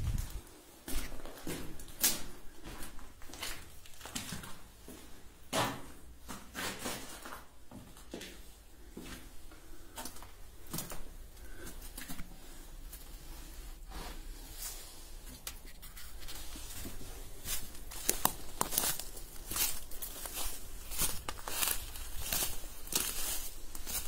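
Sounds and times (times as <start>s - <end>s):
footsteps on gritty concrete: 0.0s - 4.6s, 16.4s - 24.0s
footsteps crunching dry leaves: 16.4s - 24.0s.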